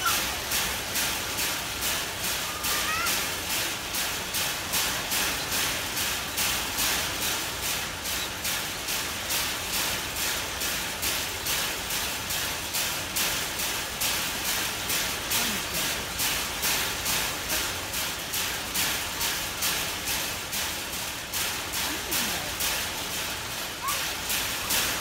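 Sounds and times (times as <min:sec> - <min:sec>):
chimpanzee striking steel bars: 0:00.0 - 0:10.2.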